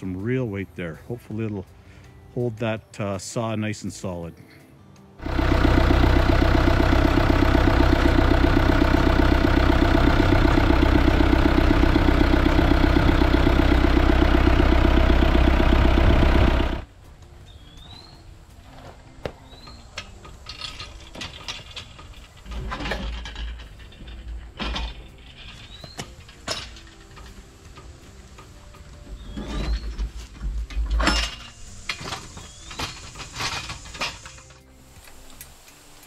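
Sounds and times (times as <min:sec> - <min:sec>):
tractor engine running: 0:05.2 - 0:17.0, 0:19.5 - 0:34.7.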